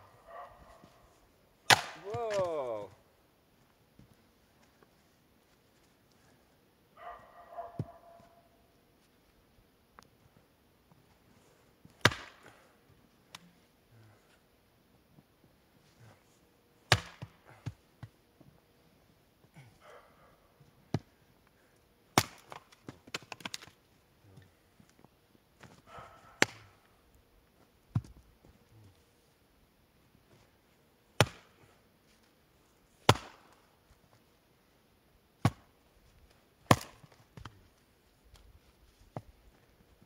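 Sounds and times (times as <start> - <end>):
axe chopping wood: 1.7 - 2.6, 12.0 - 12.6, 16.9 - 17.8, 22.2 - 23.7, 26.4 - 26.6, 31.2 - 31.6, 33.0 - 33.6, 35.4 - 35.7, 36.7 - 37.5.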